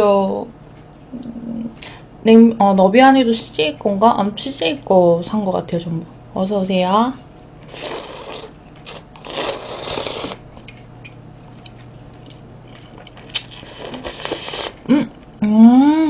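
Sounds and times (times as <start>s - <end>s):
person slurping noodles: 7.7s - 10.4s, 13.6s - 14.9s.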